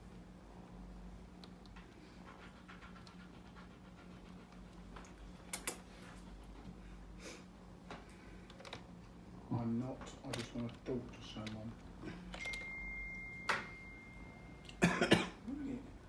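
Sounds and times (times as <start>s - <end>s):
steady low hum: 0.0s - 16.0s
faint clicks and rustles: 9.8s - 12.7s.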